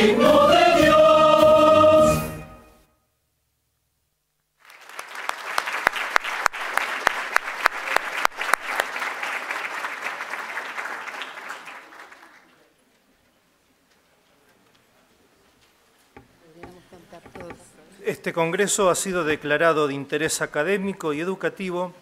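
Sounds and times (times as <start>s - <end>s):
audience applause: 4.6s - 12.8s.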